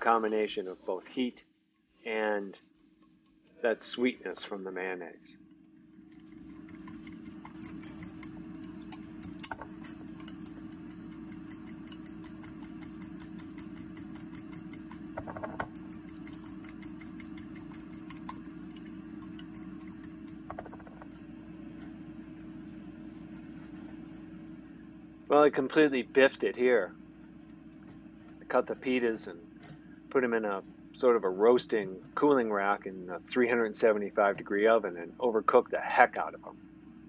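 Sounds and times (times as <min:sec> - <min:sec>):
machine hum: 0:02.1 - 0:37.0
spoon scraping glass bowl: 0:06.2 - 0:21.2.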